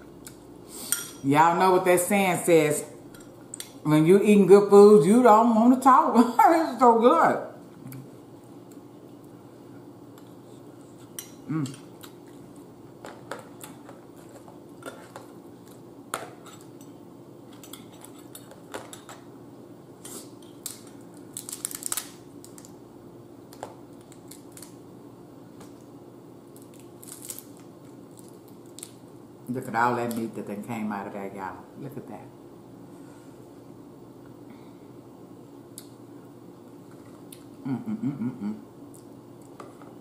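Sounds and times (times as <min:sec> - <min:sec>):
crab shell cracking: 0:20.6 - 0:22.8.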